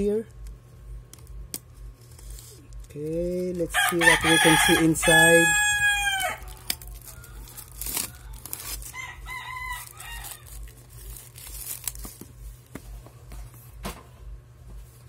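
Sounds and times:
plastic wrap crinkling and tearing: 0:03.7 - 0:12.7.

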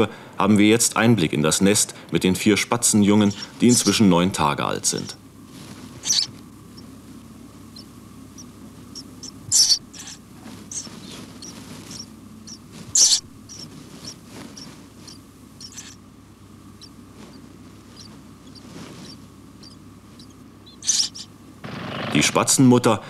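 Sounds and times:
low steady hum: 0:00.0 - 0:23.0
nestlings squeaking and peeping: 0:02.8 - 0:04.1, 0:05.6 - 0:21.5.

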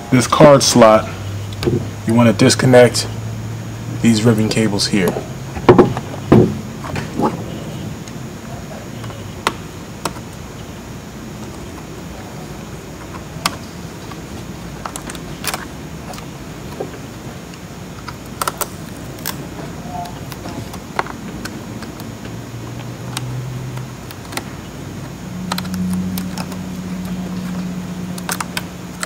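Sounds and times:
low steady hum: 0:00.0 - 0:29.0
screwdriver clicking on circuit board: 0:25.4 - 0:29.0.

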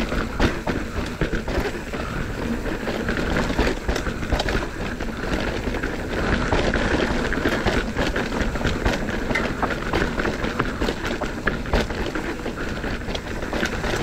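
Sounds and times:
bike rattling over bumps: 0:00.0 - 0:14.0
tyres on loose ground: 0:00.0 - 0:14.0.

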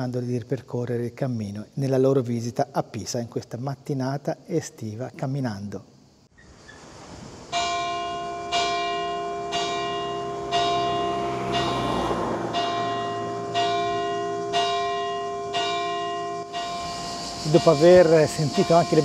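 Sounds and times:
church bell tolling: 0:07.6 - 0:19.0.

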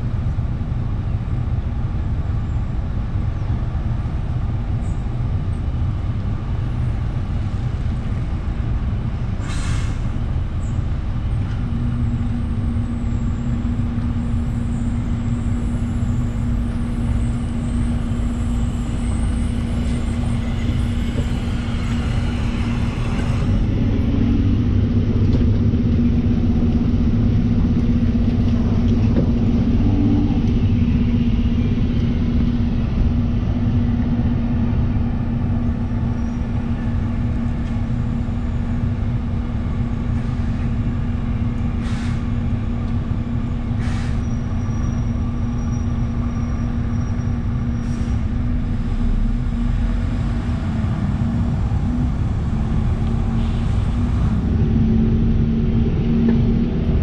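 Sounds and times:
bus diesel engine idling: 0:00.0 - 0:57.0
tram passing: 0:00.0 - 0:57.0.

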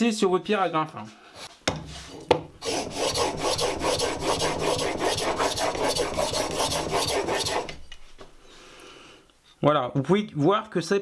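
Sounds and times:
steel rasping on wet stone: 0:02.6 - 0:08.1.

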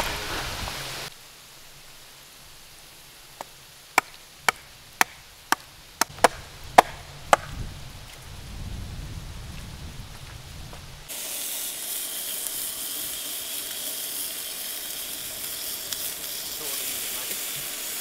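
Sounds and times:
hatchet chopping wood: 0:04.0 - 0:07.5
low rumbling noise: 0:06.2 - 0:11.1.

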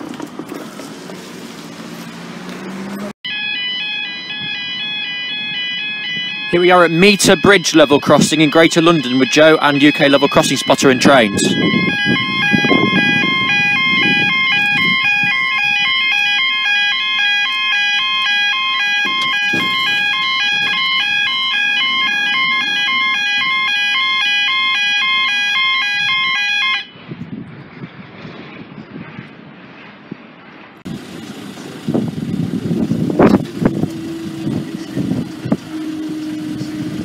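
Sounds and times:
level crossing two-tone alarm: 0:03.2 - 0:27.0.

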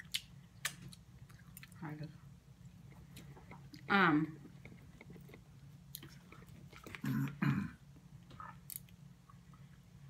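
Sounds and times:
steady low hum: 0:00.0 - 0:10.0
chewing: 0:02.8 - 0:07.4.

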